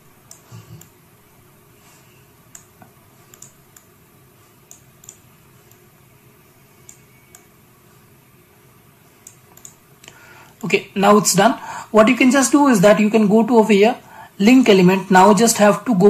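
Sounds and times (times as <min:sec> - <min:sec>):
faint room hiss: 0:00.0 - 0:16.0
computer mouse clicking: 0:00.2 - 0:01.0, 0:02.5 - 0:04.0, 0:04.6 - 0:05.9, 0:06.8 - 0:07.5, 0:09.2 - 0:10.7.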